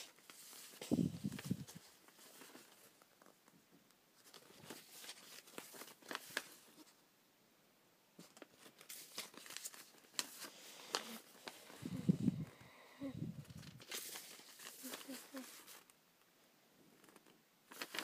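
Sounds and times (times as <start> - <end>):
paper sheets shuffled by hand: 0.0 - 3.3, 4.2 - 6.9, 8.2 - 12.4, 13.4 - 15.9, 17.0 - 18.0.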